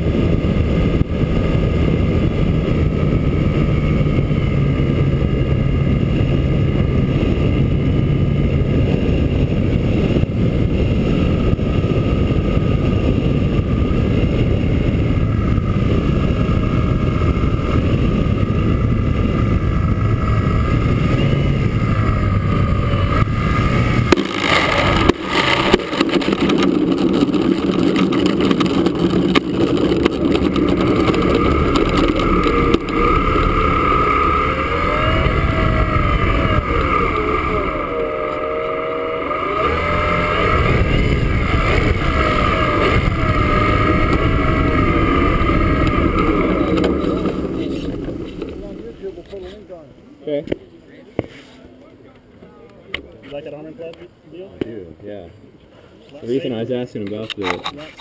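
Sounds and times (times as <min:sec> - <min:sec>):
model plane motor and propeller: 0:00.0 - 0:50.5, 0:56.1 - 0:58.0
wheels knocking on touchdown: 0:24.0 - 0:34.0.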